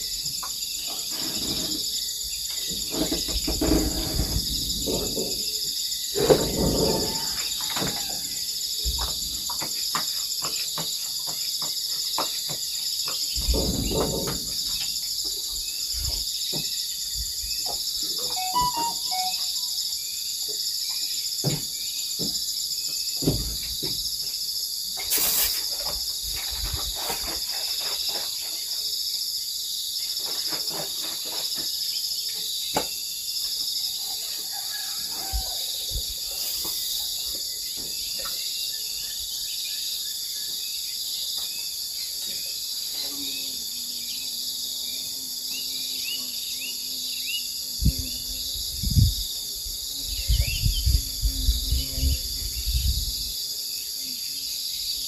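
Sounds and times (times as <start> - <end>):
insects chirping: 0.0 - 55.0
knocks and thumps: 2.6 - 5.6, 8.8 - 16.8, 21.4 - 22.5, 23.2 - 24.3.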